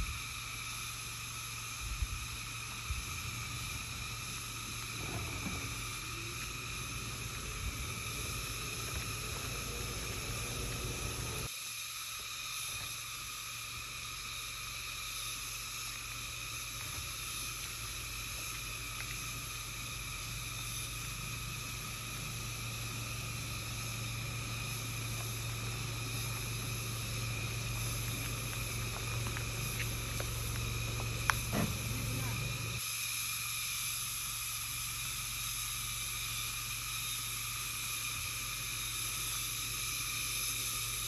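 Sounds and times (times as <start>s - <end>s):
car engine low hum: 0.0s - 11.5s, 14.8s - 32.8s
high insect chorus: 0.0s - 41.0s.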